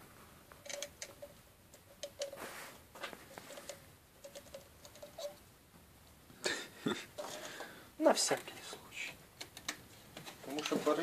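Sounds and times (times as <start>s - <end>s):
wire strands clicking and rustling: 0.5s - 5.4s.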